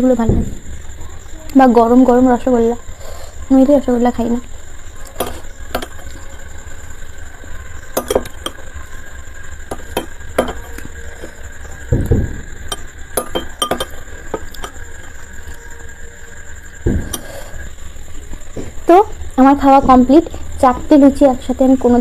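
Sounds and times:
spoon clinking on ceramic bowl: 0:08.0 - 0:08.6, 0:09.7 - 0:10.9, 0:12.7 - 0:15.1.

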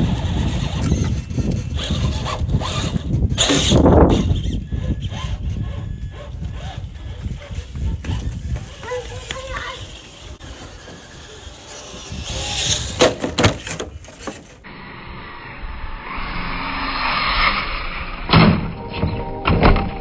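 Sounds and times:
toy car motor whirring: 0:00.0 - 0:14.7.

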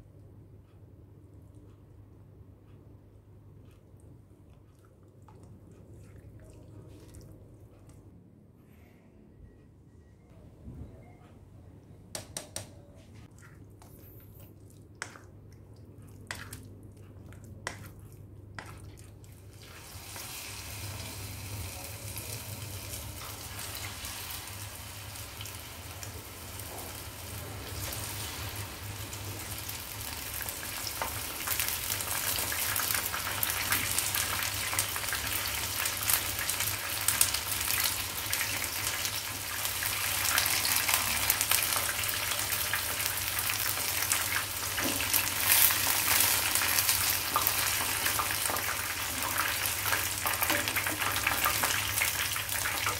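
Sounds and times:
chicken deep-frying in oil: 0:16.2 - 0:52.9.

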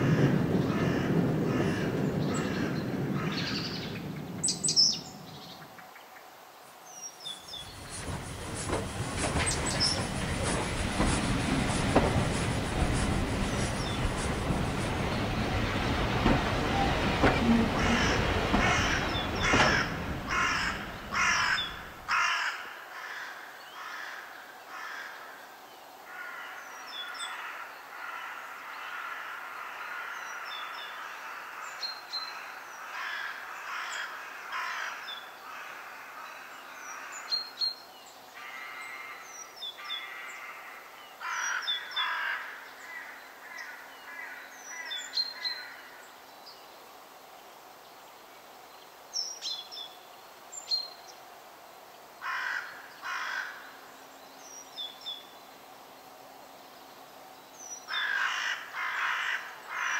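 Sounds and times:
steady hiss: 0:02.8 - 0:23.0
birds calling and chirping: 0:06.9 - 0:22.3
train running: 0:07.4 - 0:22.1.

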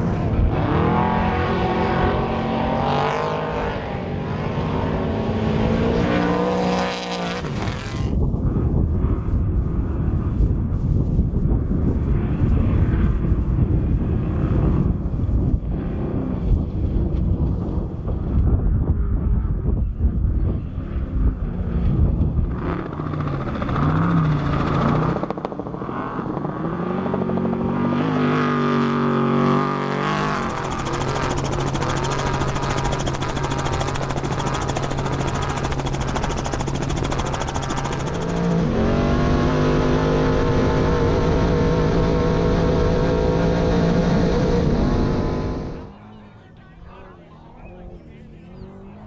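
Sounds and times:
truck engine revving at high rpm: 0:00.0 - 0:08.9, 0:21.0 - 0:46.2.

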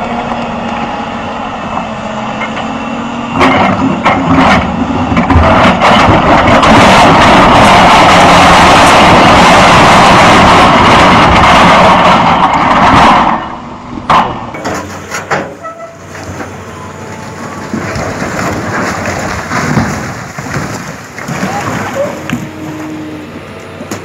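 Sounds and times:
excavator engine running: 0:00.0 - 0:24.0
rock cracking and grinding: 0:16.0 - 0:23.0.

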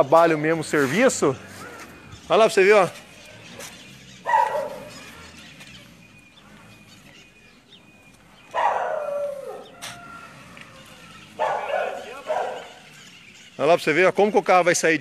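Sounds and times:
dog barking: 0:04.2 - 0:05.0, 0:08.5 - 0:09.8, 0:11.4 - 0:12.8.

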